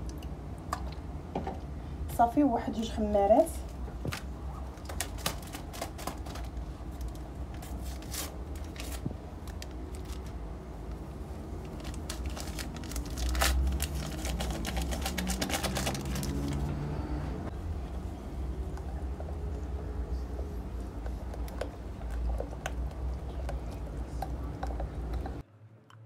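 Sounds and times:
low steady hum: 0.0 - 26.0
paper sachets tearing and crinkling: 4.1 - 10.4, 11.5 - 16.8.

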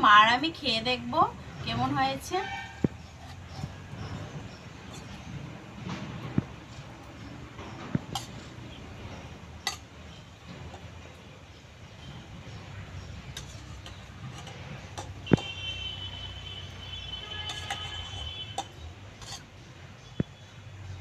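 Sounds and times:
spoon clinking on steel bowl: 9.6 - 10.9, 17.4 - 19.5.

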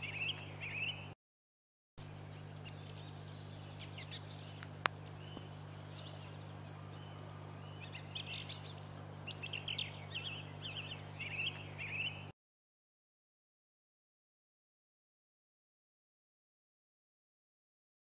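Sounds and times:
song thrush singing: 0.0 - 1.2, 2.0 - 12.3.

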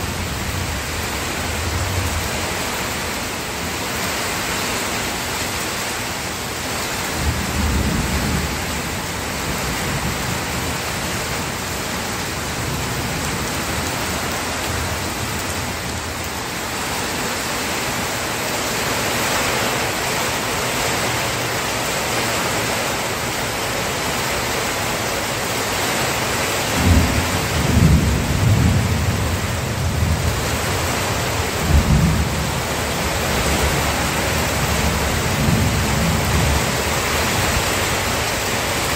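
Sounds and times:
heavy rain: 0.0 - 38.9
thunder rumbling: 26.7 - 38.9.

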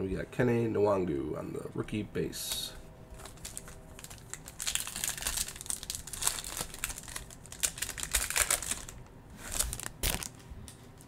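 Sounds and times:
foil wrapper crinkling: 3.1 - 10.5.

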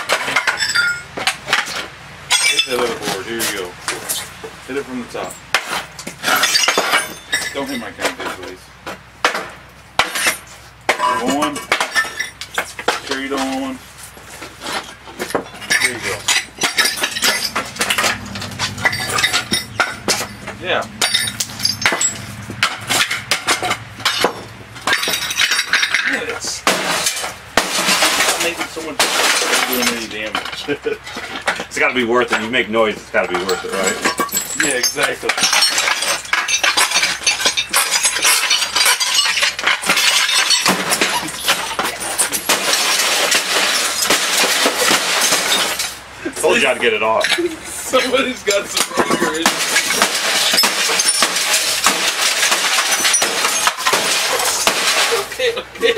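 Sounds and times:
broken glass clinking: 0.0 - 3.2, 5.2 - 8.3, 9.3 - 13.8, 14.7 - 55.9
knocks and blows: 14.7 - 25.9.

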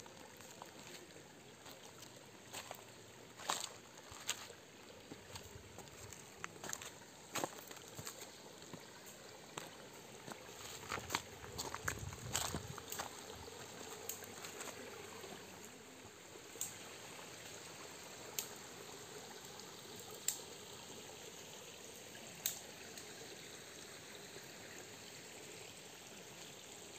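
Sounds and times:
water trickling: 0.0 - 26.9
faint sharp clicks: 14.0 - 14.4, 16.6 - 16.8, 18.3 - 18.6, 19.4 - 20.5, 22.4 - 23.1.

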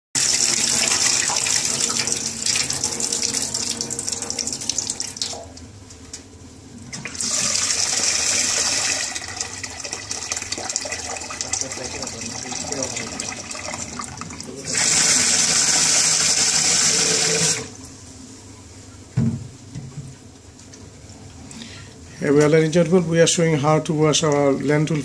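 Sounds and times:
water splashing into a steel sink: 0.2 - 5.6.

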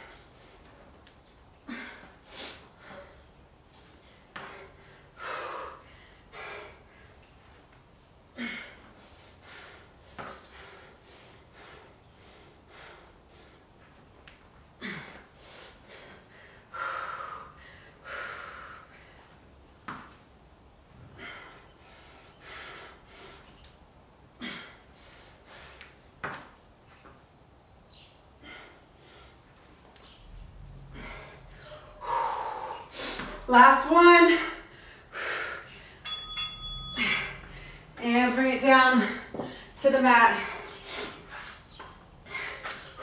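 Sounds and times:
woman breathing hard: 1.6 - 3.3, 4.0 - 7.4, 8.3 - 13.8, 14.7 - 19.5, 20.9 - 23.6, 24.3 - 26.0, 28.3 - 29.7, 30.6 - 33.5, 34.3 - 36.1, 36.8 - 38.0, 39.0 - 41.6, 42.2 - 43.0.

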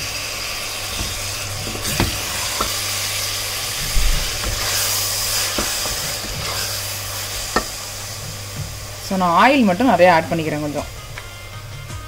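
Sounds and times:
onion paste sizzling in oil: 0.0 - 12.0
steady low hum: 0.6 - 12.0
spatula knocking a pot: 0.9 - 2.8, 5.4 - 6.6, 7.5 - 7.8
spatula scraping a pot: 0.9 - 7.8.

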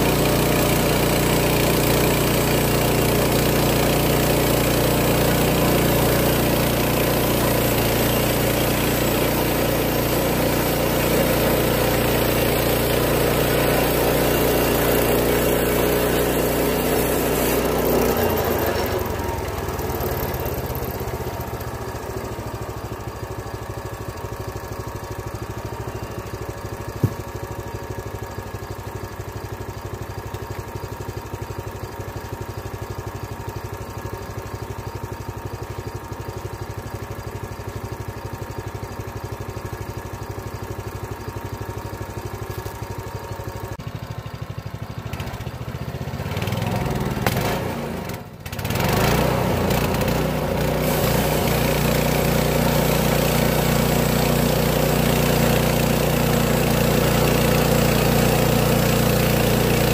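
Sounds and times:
band blade sawing log: 0.0 - 20.7, 49.3 - 56.2
sawmill gas engine running: 0.0 - 59.9.

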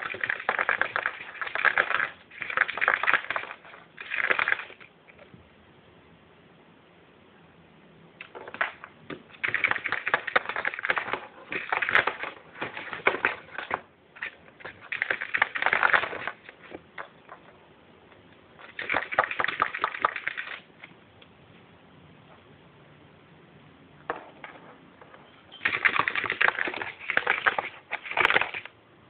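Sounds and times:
rabbit claws scratching carpet: 0.0 - 5.2, 8.2 - 17.6, 25.0 - 28.8.

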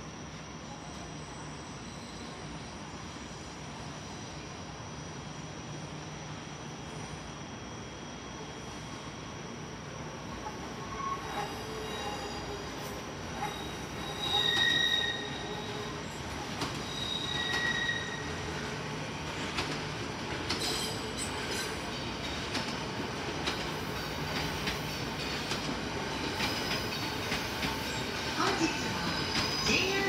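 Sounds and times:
train wheels squealing: 0.6 - 4.5, 6.9 - 30.0
train rumble: 10.3 - 30.0.

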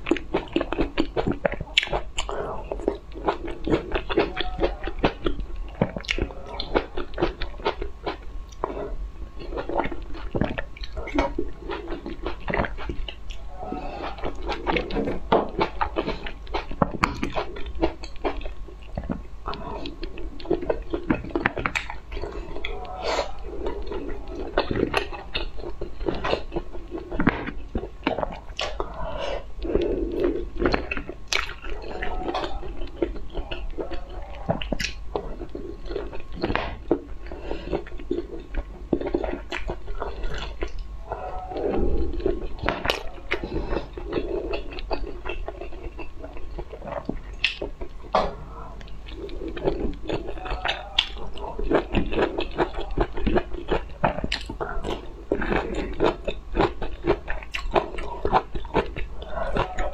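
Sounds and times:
chewing and biting food: 0.0 - 59.9.

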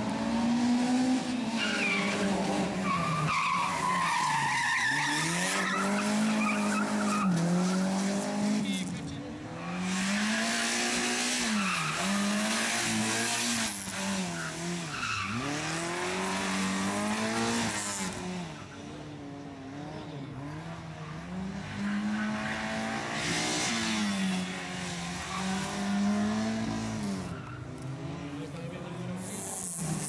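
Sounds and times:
rally car engine revving: 0.0 - 30.0.

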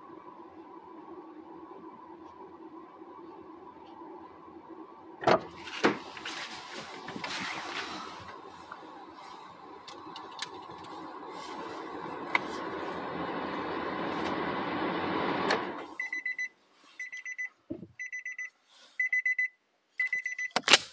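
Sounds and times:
steady rumbling noise: 0.0 - 16.0
car warning chime beeping: 15.8 - 20.6.

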